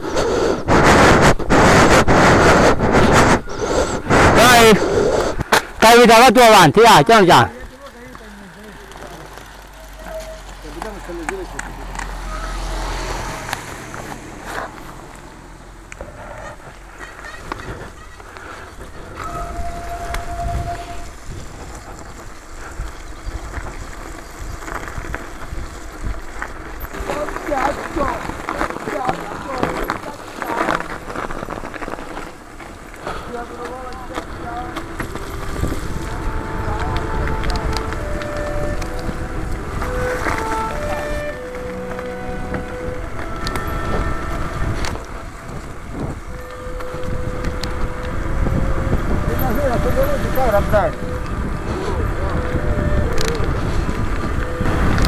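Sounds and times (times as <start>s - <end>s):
wind noise on microphone: 0.0s - 6.2s, 11.7s - 55.0s
bike tyres rumbling: 0.0s - 55.0s.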